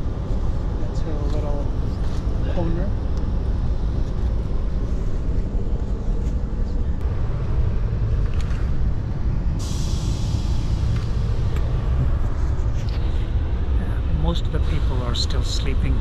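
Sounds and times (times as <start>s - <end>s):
train wheels rumbling on track: 0.0s - 16.0s
hiss: 9.4s - 13.9s.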